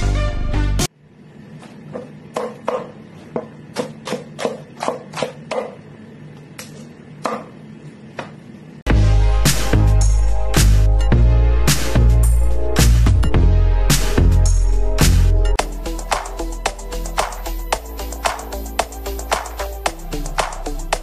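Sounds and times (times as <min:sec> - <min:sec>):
music: 0:00.0 - 0:00.9, 0:08.9 - 0:21.0
cleaver chopping cabbage on wood: 0:01.9 - 0:05.8, 0:07.2 - 0:07.6.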